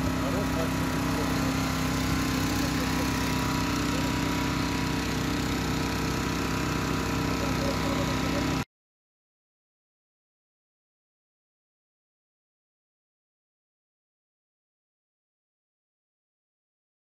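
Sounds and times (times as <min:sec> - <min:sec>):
small engine running: 0:00.0 - 0:08.7.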